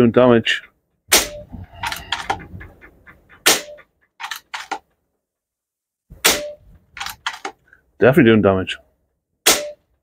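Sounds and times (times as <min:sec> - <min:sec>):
air rifle shots: 0:01.1 - 0:02.4, 0:03.4 - 0:04.8, 0:06.2 - 0:07.5, 0:09.4 - 0:09.8.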